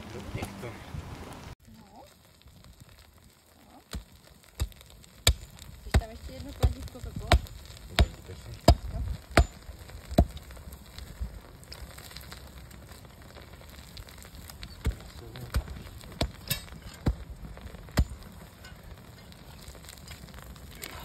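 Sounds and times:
crackle of burning iron: 0:00.0 - 0:21.0
sledgehammer striking hot iron: 0:03.9 - 0:10.6, 0:14.2 - 0:20.8.

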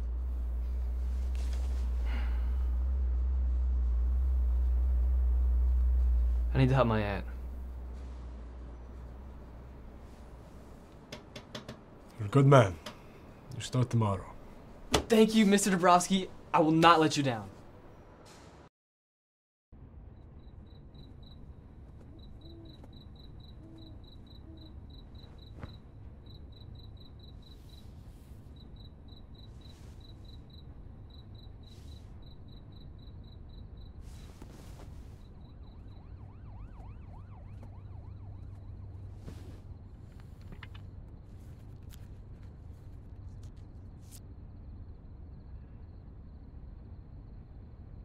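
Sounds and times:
faint steady low hum: 0:00.0 - 0:18.2, 0:19.8 - 0:48.0
cricket chirping: 0:01.8 - 0:10.2, 0:20.0 - 0:48.0.

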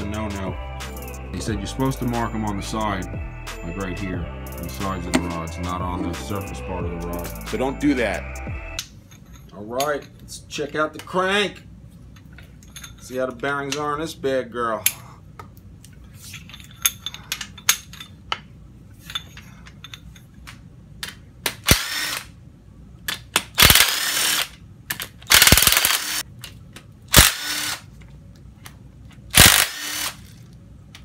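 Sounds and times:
cordless drill spinning: 0:21.7 - 0:22.2, 0:23.6 - 0:24.5, 0:25.3 - 0:26.2, 0:27.1 - 0:27.9, 0:29.4 - 0:30.4.

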